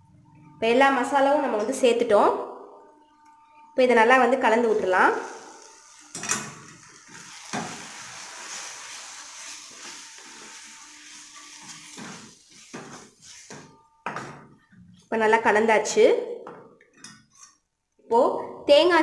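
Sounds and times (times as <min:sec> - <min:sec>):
faint sizzle of frying: 0:04.6 - 0:13.7
spatula scraping a pan: 0:04.8 - 0:13.8.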